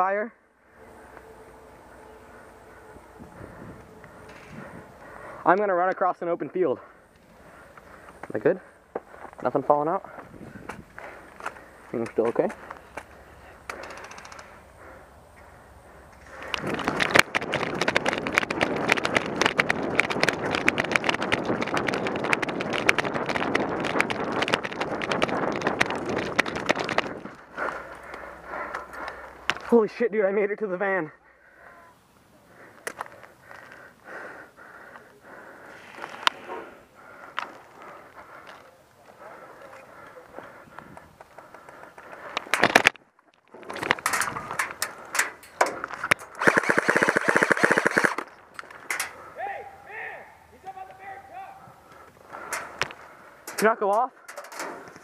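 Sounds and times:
wind on microphone: 0:03.1 - 0:05.0, 0:10.2 - 0:11.0, 0:16.5 - 0:27.5
running footfalls and gear rattling: 0:16.2 - 0:29.9, 0:37.0 - 0:49.3
airsoft rifle full-auto burst: 0:46.4 - 0:48.3.

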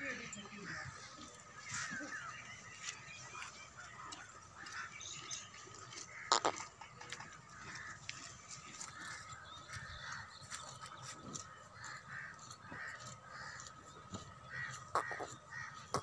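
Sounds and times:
crows cawing: 0:05.9 - 0:16.0.

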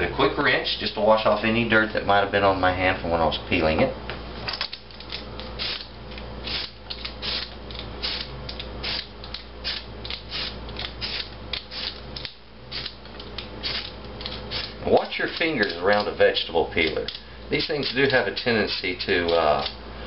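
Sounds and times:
peeler scraping potato skin: 0:05.1 - 0:16.2.

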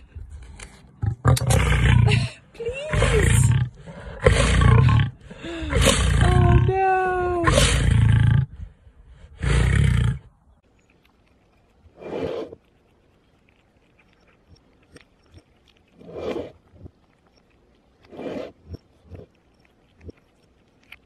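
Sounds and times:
lioness growling: 0:00.6 - 0:08.7, 0:13.5 - 0:21.0.

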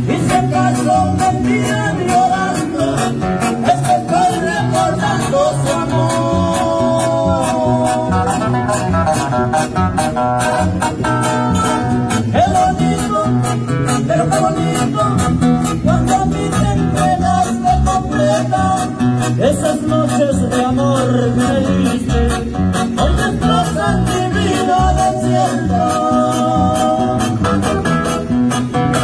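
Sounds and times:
men singing: 0:00.0 - 0:09.0, 0:11.7 - 0:27.9
acoustic guitars strumming: 0:00.0 - 0:29.0.

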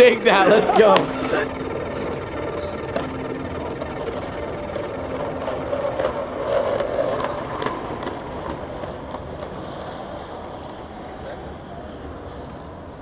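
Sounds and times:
skateboard wheels clicking over cracks: 0:02.4 - 0:11.6
skateboard wheels rumbling on asphalt: 0:04.0 - 0:13.0.

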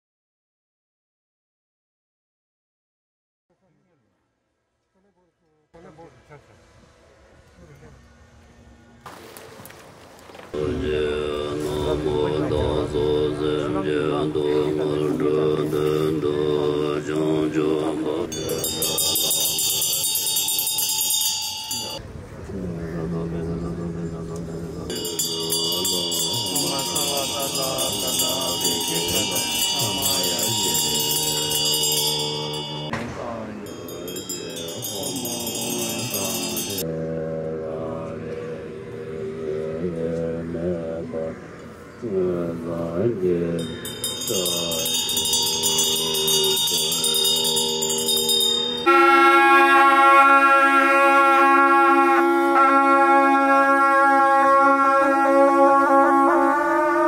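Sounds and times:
low drone: 0:05.8 - 0:57.0
monks chanting: 0:10.5 - 0:57.0
small hand bell ringing: 0:18.3 - 0:22.0, 0:24.9 - 0:32.9, 0:33.6 - 0:36.8, 0:43.6 - 0:49.0
reed horns playing a held note: 0:48.8 - 0:57.0.

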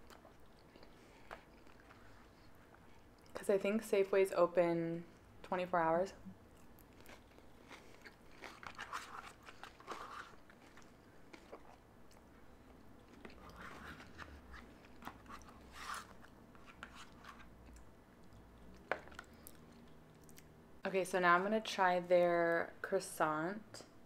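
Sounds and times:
chewing and biting food: 0:06.5 - 0:16.4.

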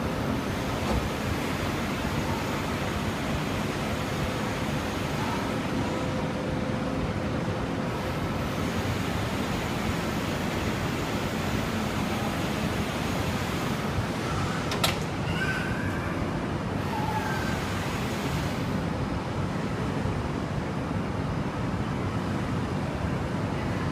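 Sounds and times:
steady background noise: 0:00.0 - 0:23.9.

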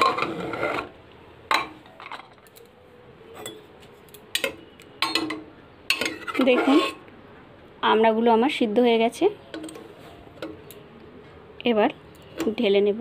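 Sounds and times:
metal ladle clinking in pot: 0:04.4 - 0:07.0, 0:09.5 - 0:09.9.

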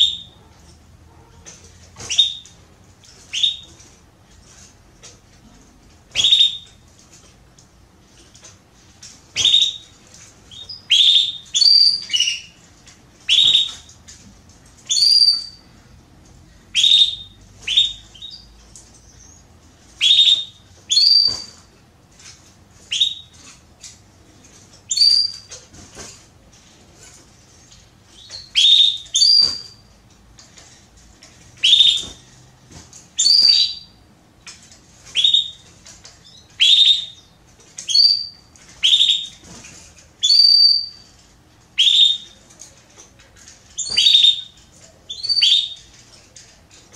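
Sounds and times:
canary chirping: 0:00.0 - 0:03.9, 0:06.1 - 0:06.8, 0:09.3 - 0:12.6, 0:13.2 - 0:13.9, 0:14.8 - 0:15.7, 0:16.7 - 0:21.7, 0:22.8 - 0:24.0, 0:24.8 - 0:25.6, 0:27.0 - 0:30.0, 0:31.6 - 0:32.4, 0:33.2 - 0:34.0, 0:35.0 - 0:39.5, 0:40.2 - 0:42.4, 0:43.6 - 0:46.1.

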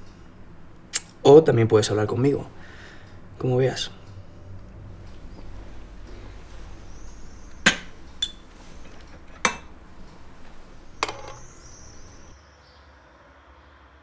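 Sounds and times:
metal pot and cup knocking: 0:07.6 - 0:08.5, 0:09.3 - 0:09.7, 0:11.0 - 0:11.5
glass set down on a tray: 0:11.0 - 0:11.5.

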